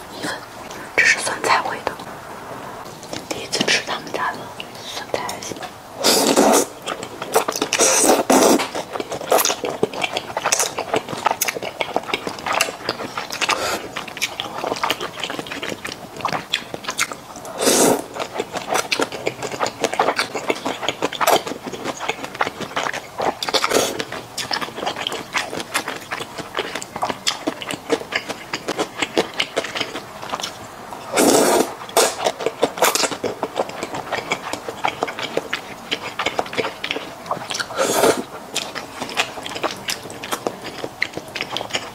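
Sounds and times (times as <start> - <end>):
wet chewing and mouth clicks: 2.8 - 41.9
slurping noodles: 6.0 - 16.4, 17.5 - 27.1, 28.8 - 41.6.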